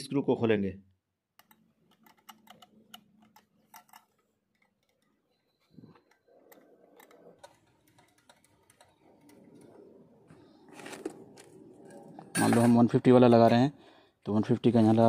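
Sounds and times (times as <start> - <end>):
screwdriver metal clicks: 1.4 - 5.2.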